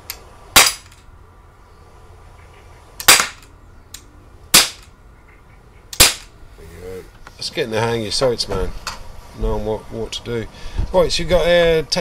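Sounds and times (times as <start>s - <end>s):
air pistol shots: 0.5s - 1.0s, 3.0s - 3.5s, 4.5s - 4.9s, 6.0s - 6.3s.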